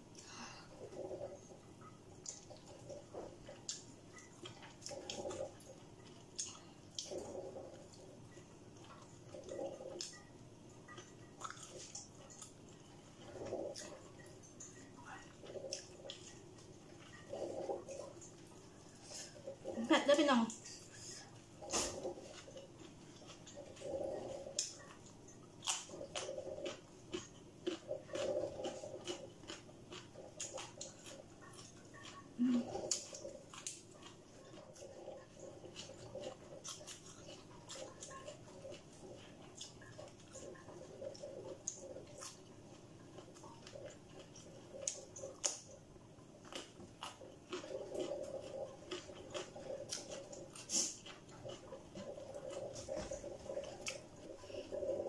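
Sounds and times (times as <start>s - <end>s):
person chewing and lip smacking: 0.9s - 19.8s, 20.5s - 55.0s.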